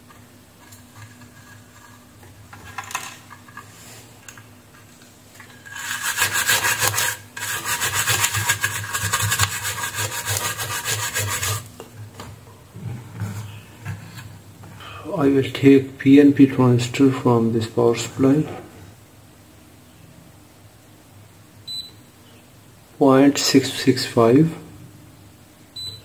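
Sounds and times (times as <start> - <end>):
brush scrubbing circuit board: 5.7 - 11.7.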